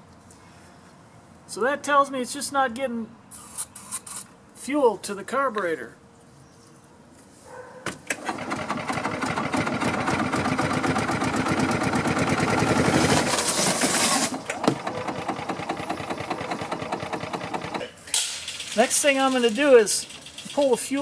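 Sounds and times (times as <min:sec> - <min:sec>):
engine cranking by starter: 0:08.0 - 0:21.0.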